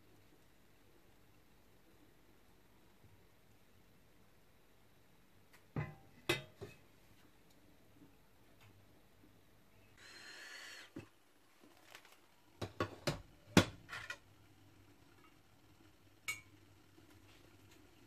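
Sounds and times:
faint steady hum: 0.0s - 18.0s
cookware clinking and knocking: 5.8s - 6.8s.

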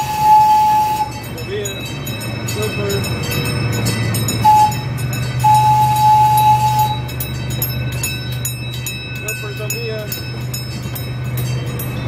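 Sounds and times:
high train horn toots: 0.0s - 1.1s, 4.4s - 4.8s, 5.4s - 7.1s
miniature train low drone: 0.0s - 12.0s.

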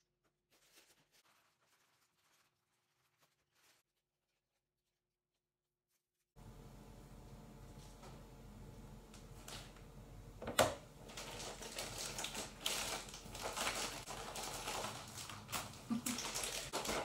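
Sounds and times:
plastic bag crinkling: 0.5s - 4.0s, 11.0s - 17.0s.

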